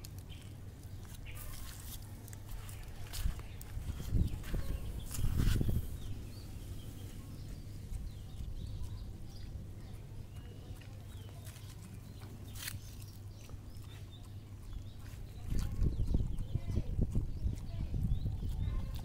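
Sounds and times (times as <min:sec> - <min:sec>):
dog chewing food: 0:07.0 - 0:19.0.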